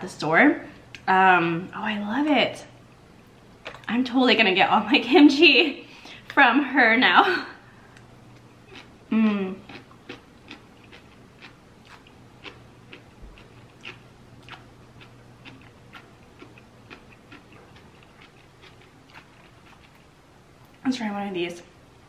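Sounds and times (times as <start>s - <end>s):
person chewing crunchy food: 7.9s - 20.1s.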